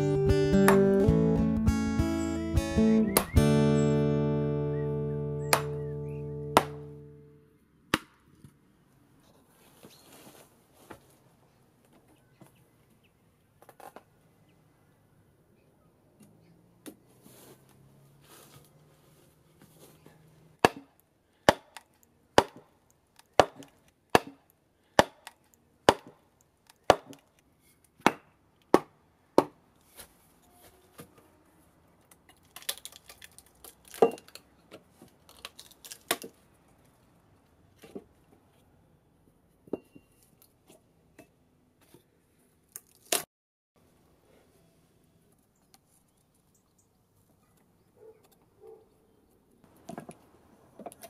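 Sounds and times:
wood cracking and splitting: 32.1 - 36.4.

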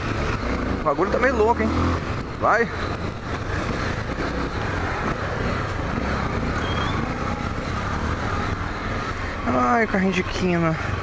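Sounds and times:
motorcycle engine running: 0.0 - 9.9
wind and road noise: 0.0 - 11.0.

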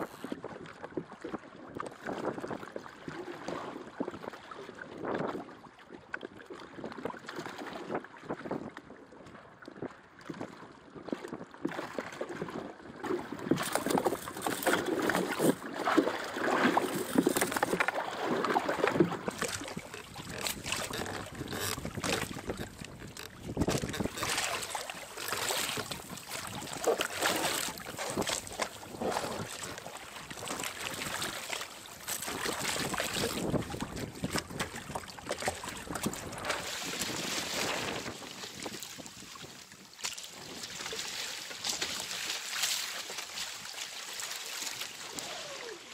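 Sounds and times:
water splashing against hull: 0.0 - 45.9
wind buffeting microphone: 18.9 - 24.8, 32.3 - 39.6.

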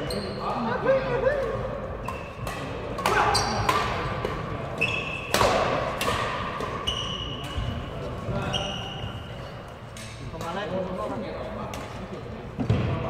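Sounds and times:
rackets hitting shuttlecock: 1.4 - 7.8
shoes squeaking on wooden floor: 6.8 - 9.6.

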